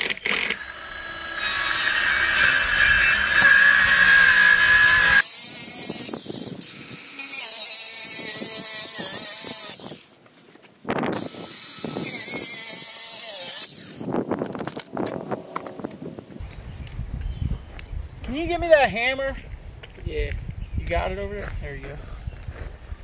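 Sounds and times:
power tool running under load: 0:00.0 - 0:05.3.

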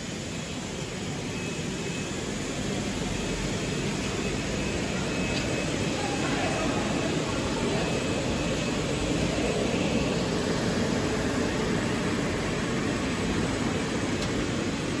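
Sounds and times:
steady machinery noise: 0:00.0 - 0:15.0.

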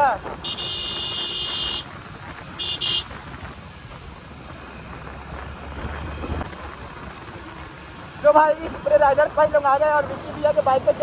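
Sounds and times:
motorcycle road noise: 0:00.0 - 0:11.0
vehicle horn beeping: 0:00.4 - 0:01.8, 0:02.6 - 0:03.1.

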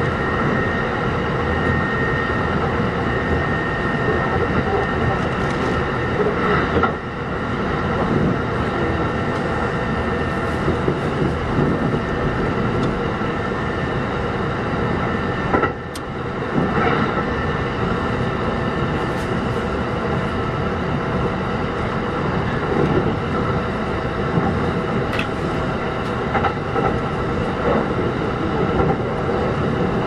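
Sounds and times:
wheel and rail noise: 0:00.0 - 0:30.0.

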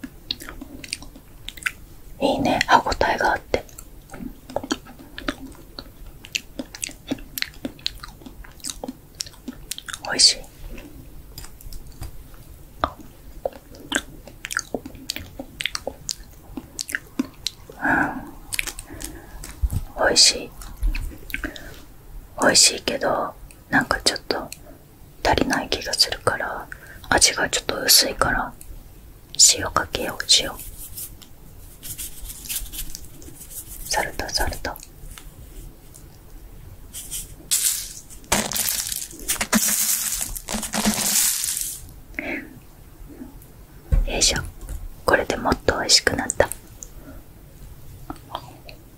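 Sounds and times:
wet mouth clicks and smacks: 0:00.3 - 0:01.8, 0:03.6 - 0:10.1, 0:12.8 - 0:17.6
hand crunching at microphone: 0:37.0 - 0:41.8.

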